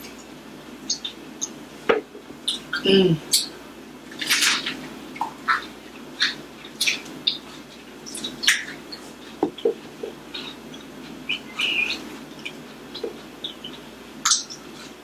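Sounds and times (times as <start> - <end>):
person chewing food: 4.2 - 15.0
wet mouth clicks and lip smacks: 6.2 - 7.4, 14.2 - 14.7.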